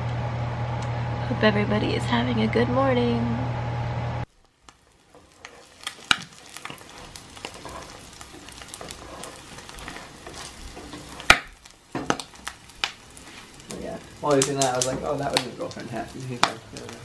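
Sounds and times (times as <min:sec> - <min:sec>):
food sizzling in oil: 0:04.0 - 0:17.0
spatula scraping and tapping pan: 0:05.0 - 0:17.0.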